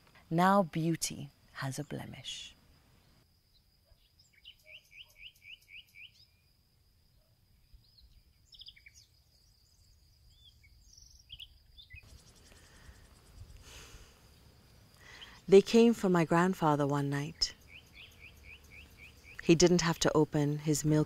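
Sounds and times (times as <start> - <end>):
bird chirping: 3.0 - 6.5, 7.1 - 13.6, 14.3 - 21.0.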